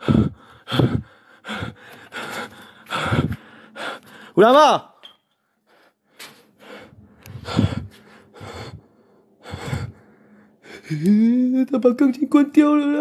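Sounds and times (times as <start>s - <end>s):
person breathing and gasping: 0.0s - 4.4s, 5.7s - 11.4s.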